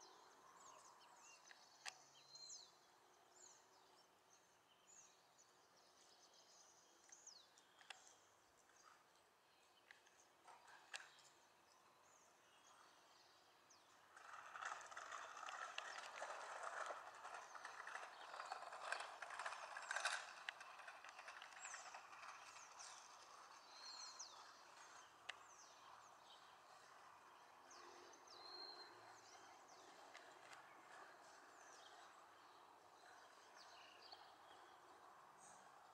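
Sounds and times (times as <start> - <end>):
rustling crackling clicks: 14.2 - 23.6.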